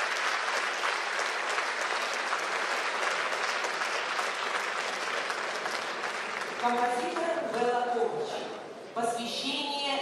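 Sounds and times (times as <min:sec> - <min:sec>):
audience applauding: 0:00.0 - 0:07.6.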